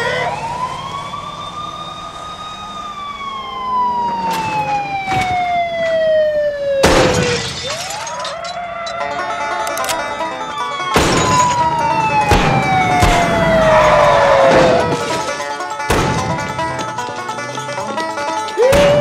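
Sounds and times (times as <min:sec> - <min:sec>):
police siren wailing: 0:00.0 - 0:17.1, 0:18.2 - 0:19.0
glass shattering: 0:06.9 - 0:09.2, 0:11.0 - 0:11.7.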